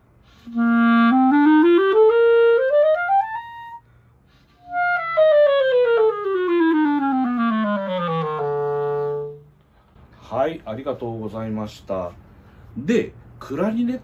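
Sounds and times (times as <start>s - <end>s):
clarinet playing runs: 0.3s - 3.8s, 4.4s - 9.6s.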